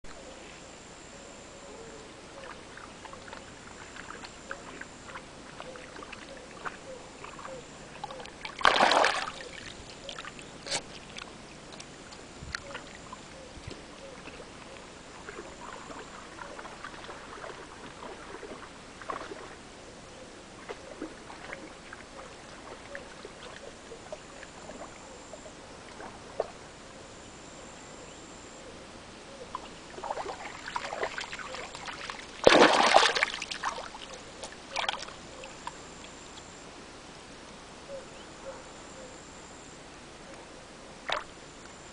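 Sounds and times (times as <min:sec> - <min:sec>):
loud splashes: 0:08.5 - 0:09.7, 0:30.0 - 0:34.0
dog splashing in water: 0:08.5 - 0:11.2, 0:30.0 - 0:34.0.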